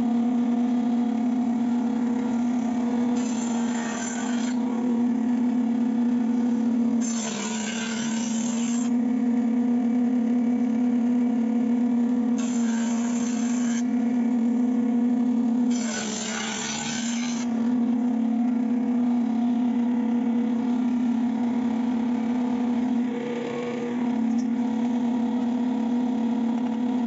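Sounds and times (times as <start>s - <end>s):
jointer motor hum: 0.0s - 27.0s
loud hiss of planing wood: 12.4s - 13.8s.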